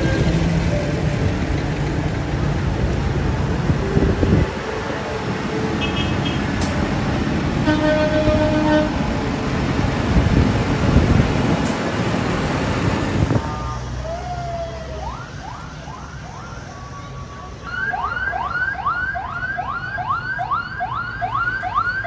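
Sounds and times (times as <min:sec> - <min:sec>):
siren whooping: 0:14.0 - 0:22.0.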